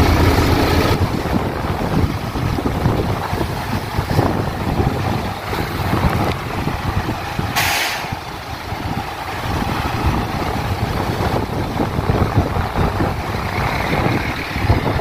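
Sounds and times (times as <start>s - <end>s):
truck diesel engines rumbling: 0.0s - 15.0s
air brake release hiss: 7.6s - 8.2s.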